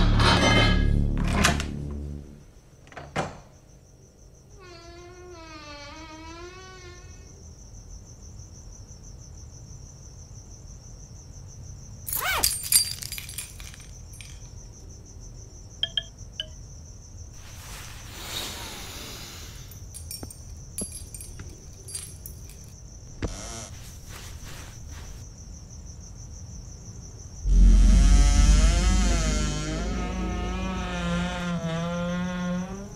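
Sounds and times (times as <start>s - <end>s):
crickets chirring: 2.3s - 32.9s.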